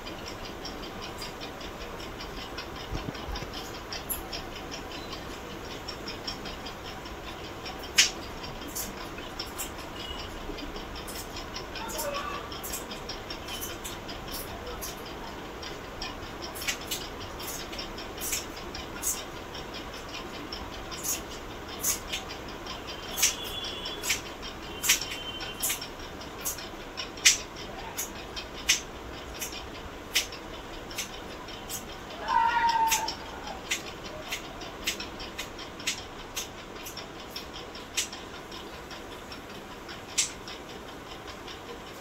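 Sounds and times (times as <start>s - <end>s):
sharp irregular clicks and taps: 0.0s - 42.0s
cat meowing: 32.2s - 33.6s.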